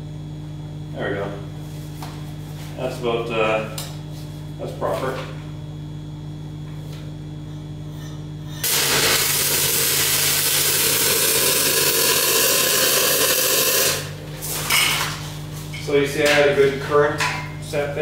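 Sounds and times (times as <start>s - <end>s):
welding arc crackling hiss: 8.6s - 14.2s.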